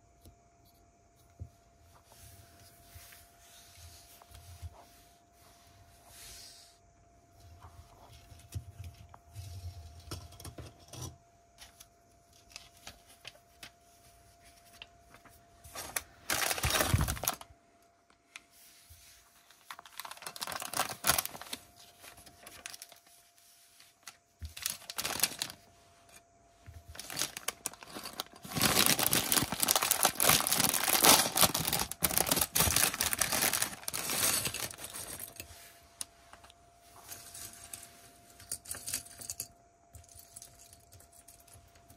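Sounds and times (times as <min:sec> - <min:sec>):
plastic rustling and crinkling: 0:11.6 - 0:17.5, 0:18.1 - 0:38.3.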